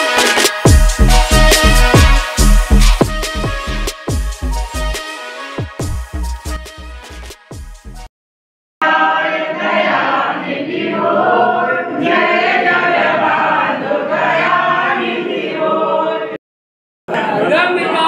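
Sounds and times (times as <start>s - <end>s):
group singing a devotional chant: 8.8s - 16.4s.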